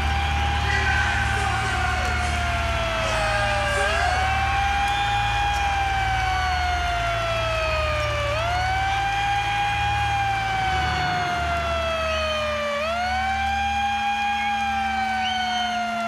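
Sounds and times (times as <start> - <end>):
siren-like tone sliding in pitch: 5.9 - 16.0
low pulsing hum: 7.8 - 13.5.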